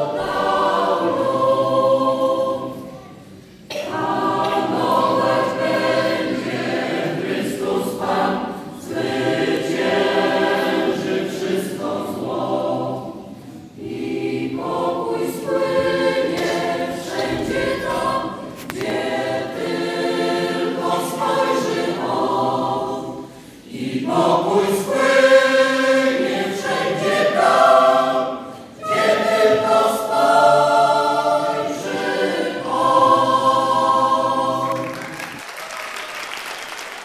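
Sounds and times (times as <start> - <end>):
mixed choir singing a cappella: 0.0 - 35.4
applause: 34.6 - 37.0.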